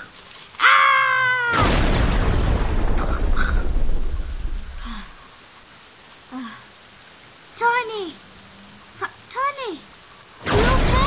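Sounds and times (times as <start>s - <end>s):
loud boom with deep rumble: 1.6s - 5.2s.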